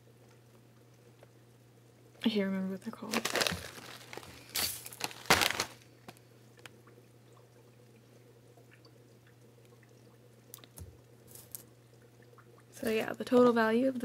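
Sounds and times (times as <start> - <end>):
cones crackling in plastic bag: 2.9 - 6.7.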